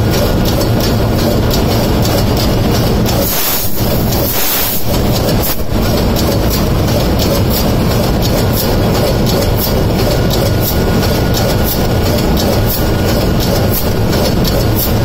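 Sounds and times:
engine clatter: 0.0 - 15.0
engine room rumble: 0.0 - 15.0
hiss: 3.2 - 5.6.

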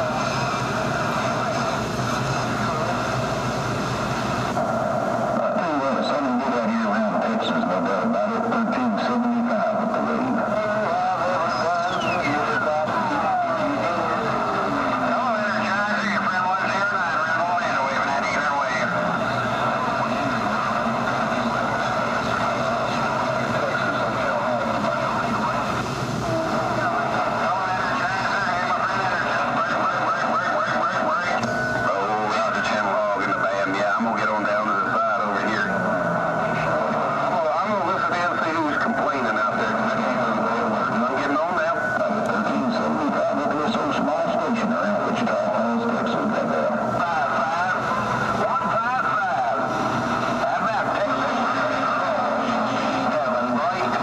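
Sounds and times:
garbled radio transmission: 0.0 - 54.0
radio static and hiss: 0.0 - 54.0.

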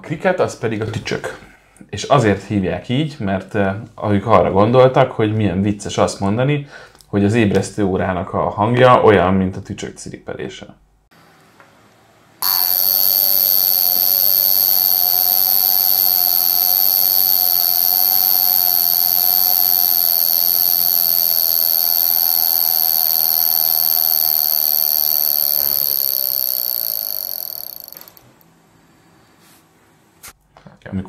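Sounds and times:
watch alarm buzzing: 12.4 - 28.4.

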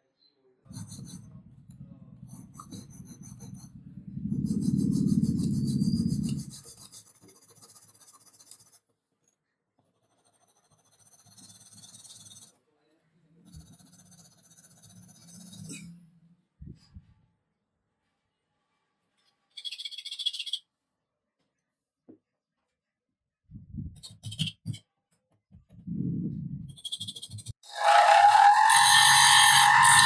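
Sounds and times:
hacksaw cutting wood: 27.6 - 30.0.

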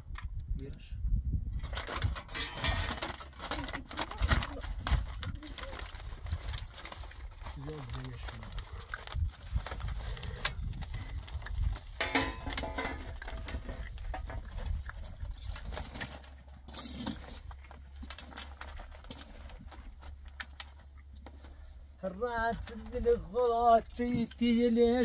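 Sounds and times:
foil and cookware clinking: 1.6 - 9.0, 11.8 - 20.7.

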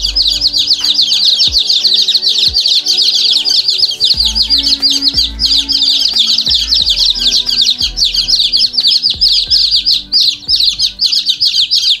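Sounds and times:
low hum: 0.0 - 1.6, 4.1 - 11.5
chicks peeping: 0.0 - 12.0.

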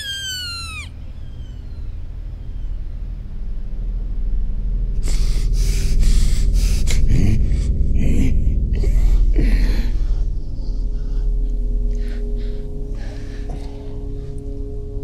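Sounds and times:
low steady drone: 0.0 - 15.0
man gasping breaths: 5.0 - 14.5.

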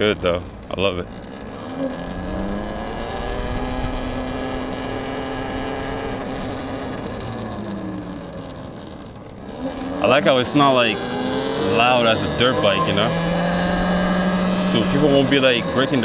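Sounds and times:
electric motor whining: 0.0 - 16.0
low road rumble: 0.0 - 16.0.

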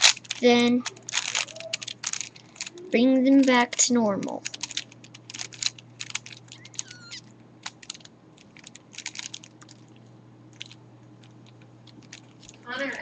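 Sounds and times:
puzzle cube clicking: 0.0 - 9.8.

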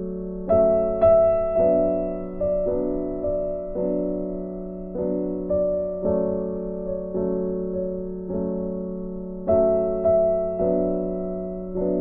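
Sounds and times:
piano melody: 0.0 - 12.0.

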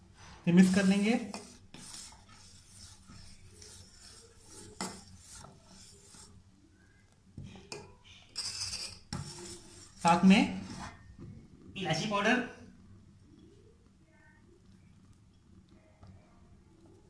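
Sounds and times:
ladle scraping metal pan: 0.2 - 6.4, 7.7 - 11.0.

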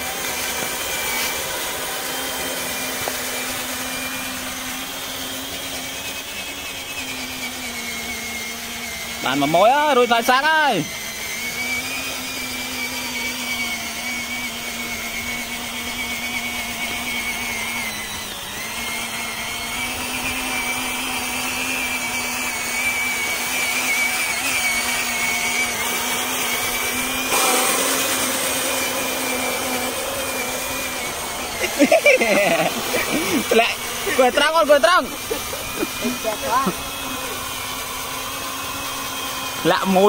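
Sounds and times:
electric motor whining: 0.0 - 40.0
loud rough noise: 8.6 - 40.0.

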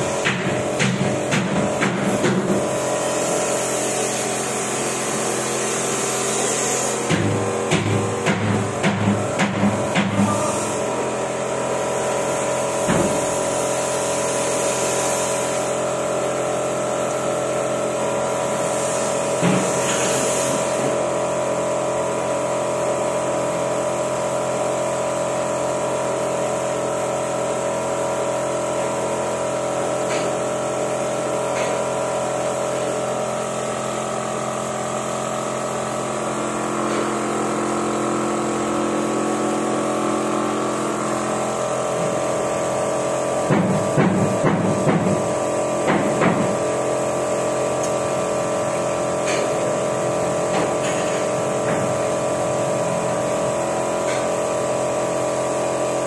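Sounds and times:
paint spray gun hissing: 0.0 - 21.4, 24.6 - 56.0
air compressor running: 0.0 - 56.0.

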